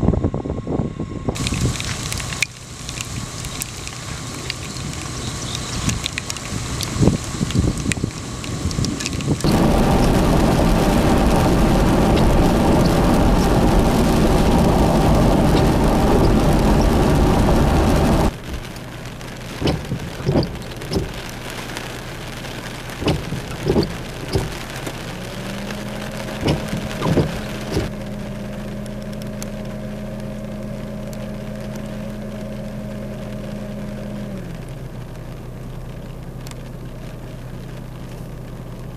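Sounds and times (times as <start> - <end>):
low engine hum: 0.0 - 38.9
heavy rain rushing: 1.3 - 38.9
raindrops tapping: 1.4 - 38.9.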